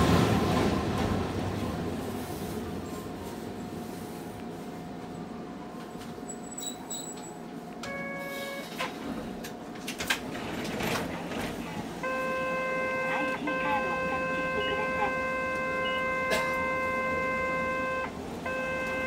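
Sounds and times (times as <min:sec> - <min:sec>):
tram running hum: 0:00.0 - 0:19.0
short high beeps: 0:07.8 - 0:08.7, 0:12.0 - 0:19.0.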